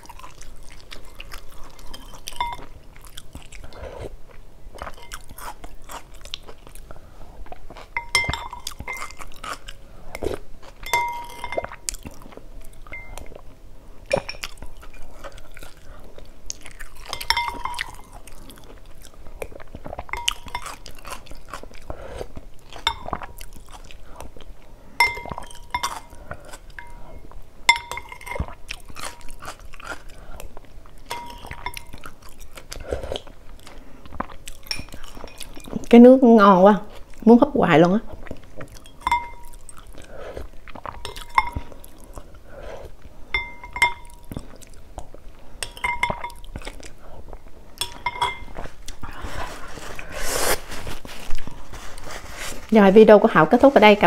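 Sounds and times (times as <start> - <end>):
person chewing: 0.0 - 35.9, 38.1 - 52.7
metal spoon clinking glass bowl: 2.0 - 2.7, 4.9 - 5.3, 8.0 - 9.2, 10.8 - 11.8, 12.8 - 13.3, 17.0 - 18.1, 20.1 - 20.9, 22.8 - 23.2, 25.0 - 26.2, 26.8 - 29.2, 31.1 - 32.0, 34.6 - 35.8, 38.8 - 39.6, 41.0 - 41.7, 43.3 - 44.3, 45.6 - 46.6, 47.8 - 48.6.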